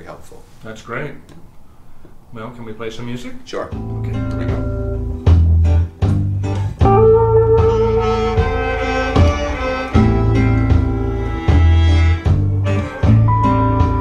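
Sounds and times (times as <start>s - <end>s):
deep bass notes: 3.8s - 14.0s
electric guitar: 3.8s - 14.0s
steady drum beat: 3.8s - 14.0s.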